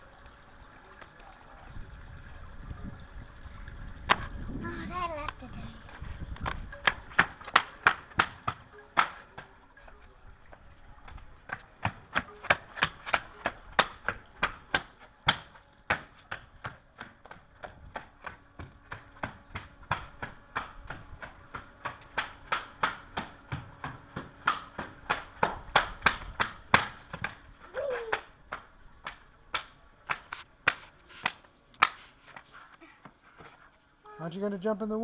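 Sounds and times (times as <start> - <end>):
swim fins slapping on stone: 6.4 - 9.5, 11.1 - 33.6.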